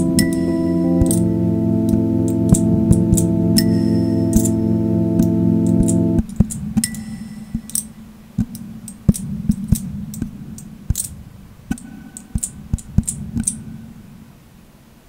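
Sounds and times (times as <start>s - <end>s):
low steady hum: 0.0s - 15.0s
irregular sharp clicks: 5.2s - 7.0s.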